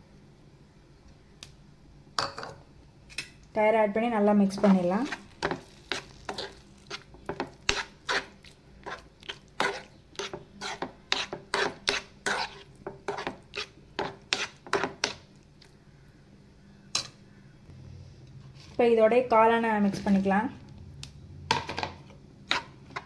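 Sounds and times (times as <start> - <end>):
spatula scraping a pan: 4.5 - 15.2, 22.5 - 23.0.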